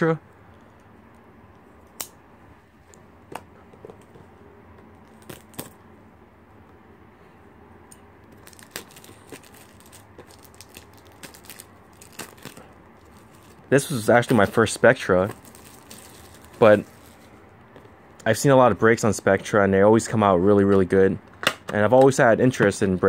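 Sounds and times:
plastic shrink-wrap crinkling: 8.3s - 17.3s.

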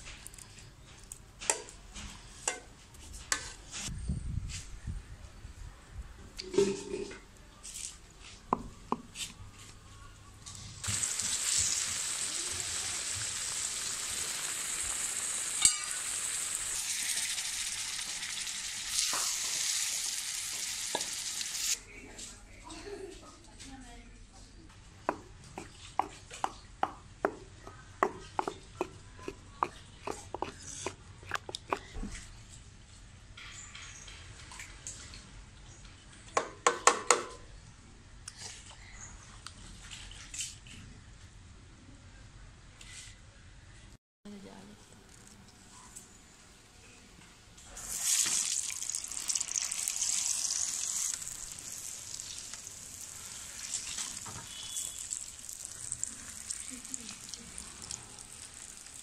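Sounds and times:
batter sizzling in hot oil: 10.8s - 21.8s, 47.7s - 59.0s
pestle pounding in stone mortar: 25.0s - 32.0s.

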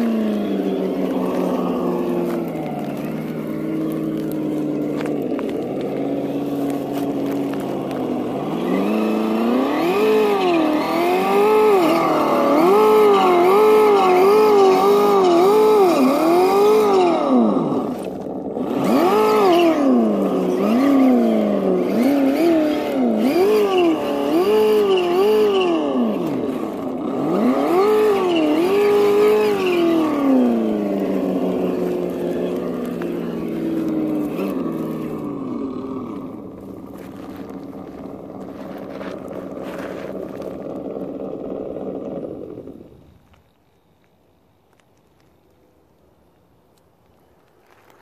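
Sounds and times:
simulated truck engine revving: 0.0s - 43.1s.

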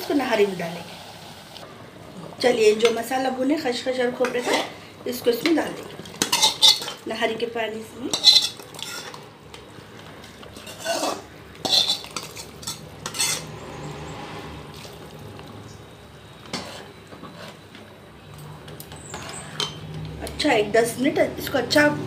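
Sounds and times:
steel ladle stirring stew: 5.4s - 7.0s, 8.1s - 13.7s
paste scraped from metal pan: 10.6s - 13.6s.

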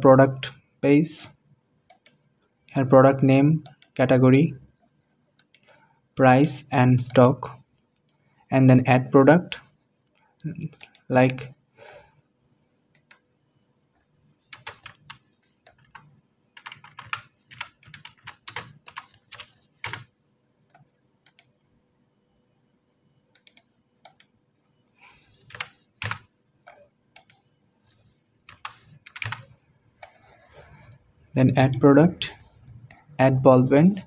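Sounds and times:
typing on computer keyboard: 3.6s - 4.0s, 14.4s - 20.1s, 20.7s - 21.5s, 23.4s - 24.3s, 25.3s - 26.3s, 28.5s - 30.3s.

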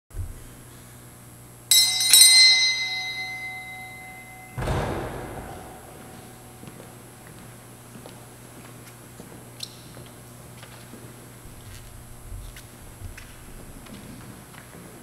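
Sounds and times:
small bell ringing: 1.7s - 6.7s
dull thump: 4.6s - 6.9s.

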